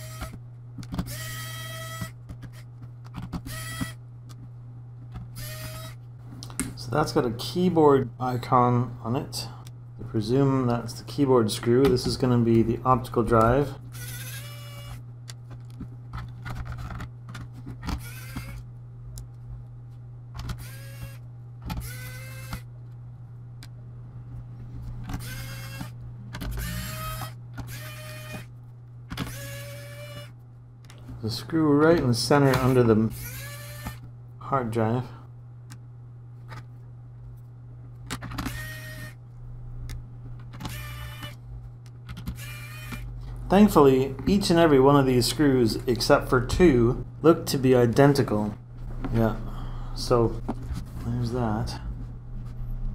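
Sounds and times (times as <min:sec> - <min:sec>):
steady low hum: 0:00.0 - 0:52.9
electric screwdriver whirring: 0:01.0 - 0:02.6, 0:03.4 - 0:04.0, 0:05.3 - 0:06.0, 0:14.0 - 0:15.0, 0:17.9 - 0:18.6, 0:20.5 - 0:21.2, 0:21.8 - 0:22.6, 0:25.2 - 0:28.5, 0:29.2 - 0:30.3, 0:32.6 - 0:34.0, 0:38.4 - 0:39.2, 0:40.6 - 0:41.4, 0:42.3 - 0:43.1.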